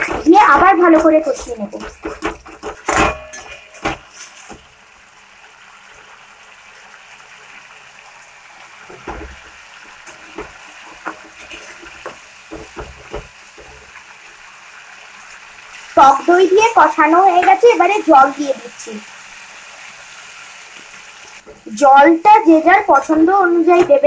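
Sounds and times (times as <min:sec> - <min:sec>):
metal spatula scraping pan: 0:00.0 - 0:04.6, 0:10.1 - 0:12.8
food sizzling in pan: 0:00.0 - 0:24.0.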